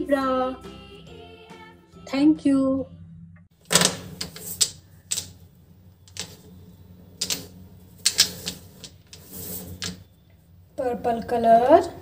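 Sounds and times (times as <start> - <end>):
pens clicking and tapping on paper: 3.7 - 5.4, 6.1 - 6.4, 7.2 - 9.2.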